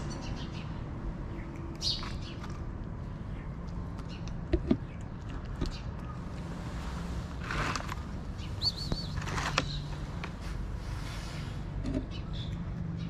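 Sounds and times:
bird chirp: 0.0 - 2.6, 7.9 - 10.1, 11.3 - 13.0
cats eating: 0.8 - 13.0.

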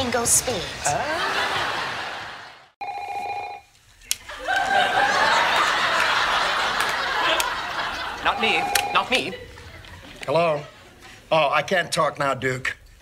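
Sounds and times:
studio audience laughter: 0.9 - 2.8, 4.3 - 11.2
telephone ringing: 2.8 - 3.7, 8.0 - 9.4.

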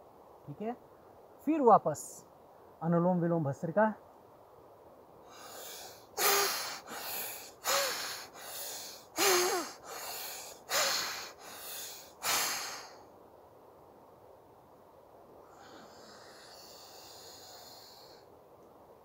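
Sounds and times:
forceful breaths through nostril: 5.2 - 13.0.

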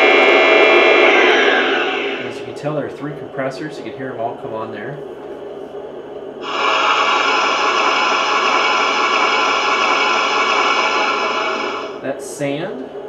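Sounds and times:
loud steady hiss: 0.0 - 3.1, 6.4 - 12.2.

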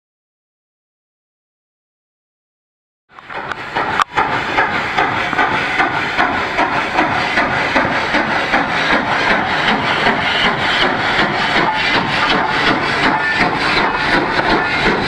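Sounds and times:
steam locomotive exhaust chuffs: 3.1 - 15.0
steam hissing: 3.2 - 15.0.

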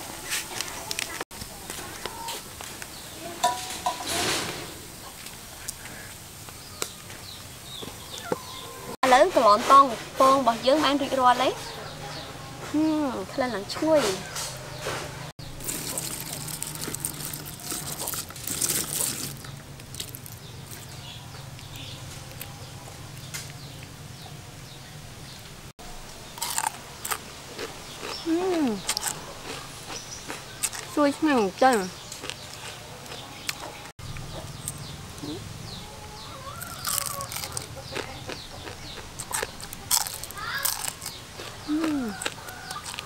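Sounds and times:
small birds chirping: 5.0 - 25.5, 26.4 - 43.0
chicken calling: 8.0 - 9.0, 35.2 - 43.0
fried food crackling when handled: 15.5 - 20.9, 36.6 - 43.0.

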